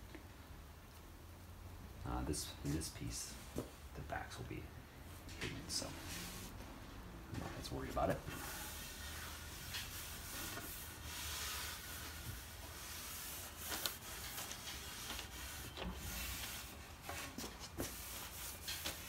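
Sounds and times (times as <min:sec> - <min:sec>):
rag wiping over wood: 0:05.7 - 0:06.6, 0:07.7 - 0:19.0.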